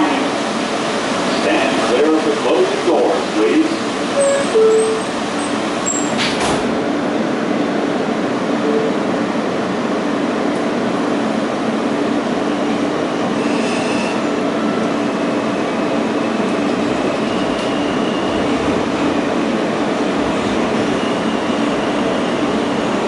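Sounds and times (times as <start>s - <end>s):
train wheels rumbling and rattling: 0.0s - 23.0s
faint high tone: 4.2s - 5.0s.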